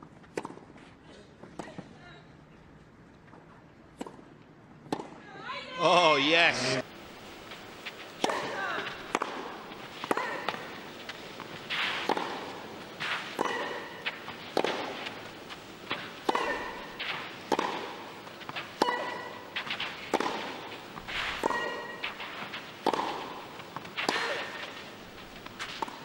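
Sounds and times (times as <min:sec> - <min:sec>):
tennis ball hit by racket: 0:07.2 - 0:26.0.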